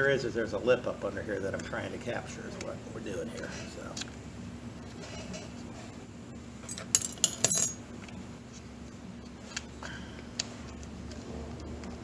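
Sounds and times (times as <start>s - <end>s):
small metal parts clinking: 6.7s - 7.8s.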